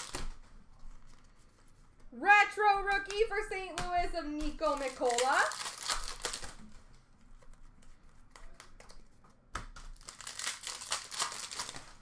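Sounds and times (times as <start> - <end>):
foil wrapper crinkling and tearing: 0.0 - 0.3, 4.6 - 6.8, 9.9 - 12.0.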